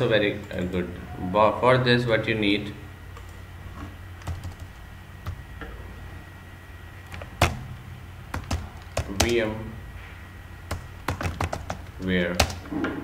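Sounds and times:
computer keyboard keys clicking: 4.2s - 5.4s, 7.1s - 7.6s, 8.3s - 9.4s, 10.7s - 12.6s.

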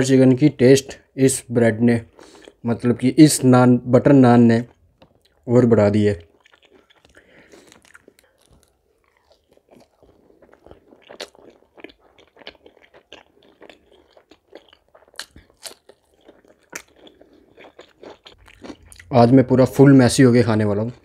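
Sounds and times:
close chewing and mouth smacks: 4.6s - 5.5s, 6.2s - 19.2s.

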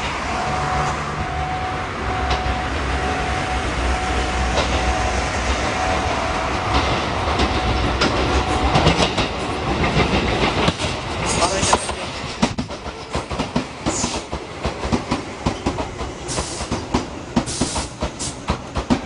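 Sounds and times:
electric train running past: 0.0s - 19.0s
wheels clicking over rail joints: 6.7s - 19.0s.

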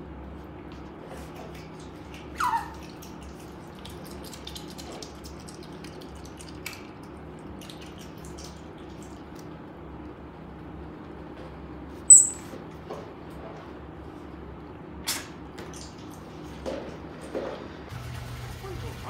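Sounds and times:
otters chewing fish: 1.2s - 9.5s.

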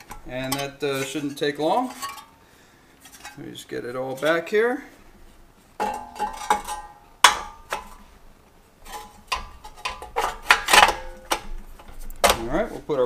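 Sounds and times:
metal clanks and knocks: 0.0s - 2.3s, 5.8s - 8.1s, 8.8s - 12.6s.

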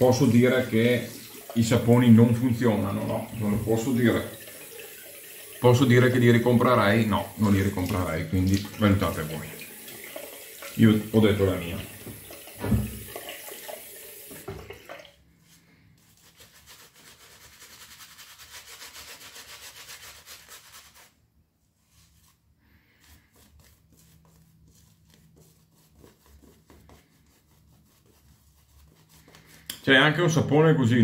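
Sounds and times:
shaving brush scrubbing: 0.0s - 11.8s, 15.4s - 21.2s, 21.8s - 30.0s
water tap running: 0.0s - 15.2s.

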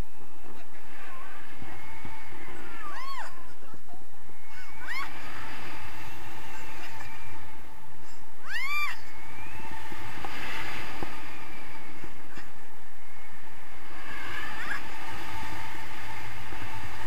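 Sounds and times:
wind rushing over microphone: 0.0s - 17.0s
person squealing: 2.4s - 3.5s, 4.4s - 5.2s.

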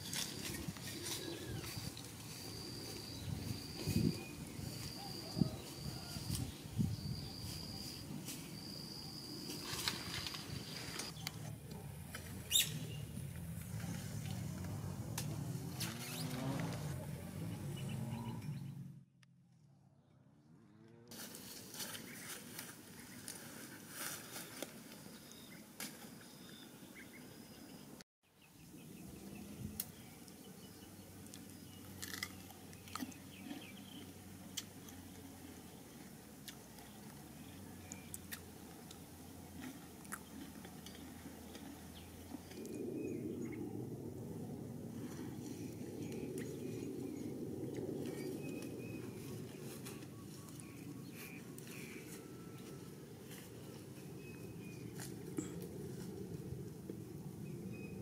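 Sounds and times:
branches and leaves crackling: 0.0s - 5.1s, 9.4s - 17.4s, 21.1s - 26.3s, 45.0s - 57.4s
leafy brush rustling: 0.0s - 8.7s, 9.3s - 17.4s, 21.1s - 26.2s, 48.1s - 56.9s.

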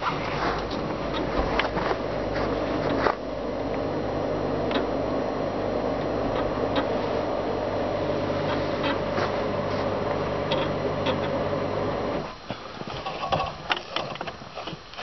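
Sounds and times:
mechanical hum: 0.0s - 15.0s
metal clicks and knocks: 12.9s - 14.8s.

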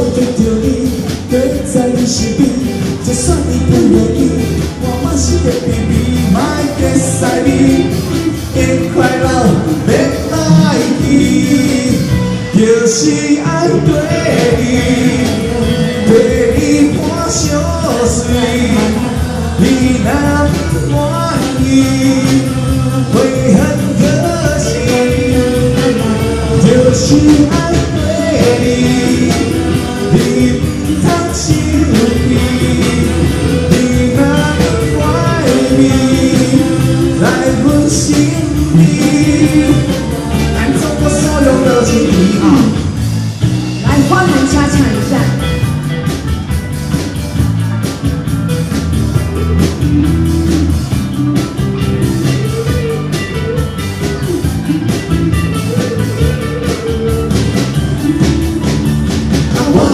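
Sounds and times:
person singing into microphone: 0.0s - 43.0s, 43.8s - 45.5s, 59.4s - 59.9s
drum kit: 0.0s - 59.9s
electric guitars: 0.0s - 59.9s.

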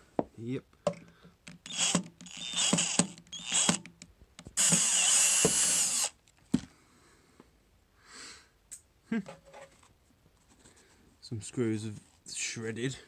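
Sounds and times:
cordless drill whining: 1.6s - 3.9s, 4.6s - 6.2s.

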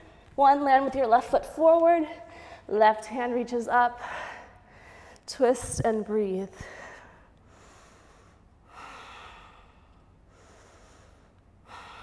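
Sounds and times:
woman breathing deeply: 4.0s - 5.3s, 6.5s - 12.0s.

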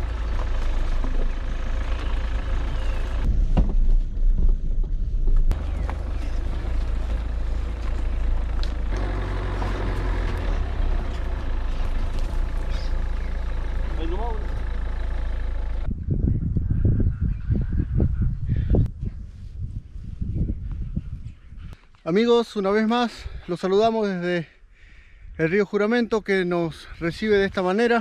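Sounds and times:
vehicle thumps and jolts: 0.0s - 14.0s
vehicle engine low rumble: 0.0s - 21.8s.

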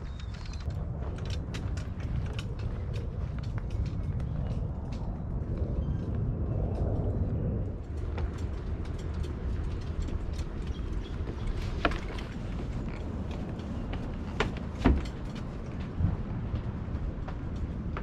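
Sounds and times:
fishing gear creaking and clicking: 0.0s - 5.2s, 7.8s - 16.0s
low rumble: 0.0s - 18.0s.

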